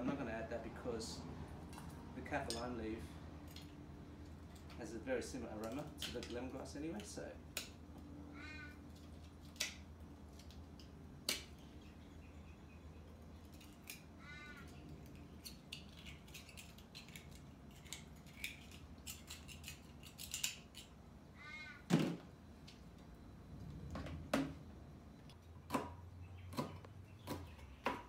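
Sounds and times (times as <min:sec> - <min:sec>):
knife scraping shells: 0:13.4 - 0:21.0.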